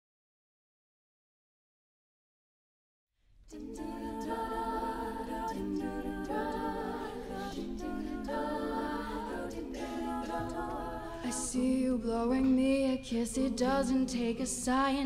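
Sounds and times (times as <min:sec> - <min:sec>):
women singing a cappella harmony: 0:03.5 - 0:15.0.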